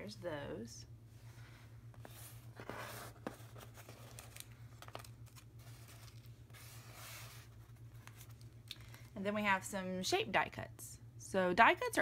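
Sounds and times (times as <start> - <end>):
steady low hum: 0.0 - 12.0
paper and plastic rustling: 2.0 - 9.2.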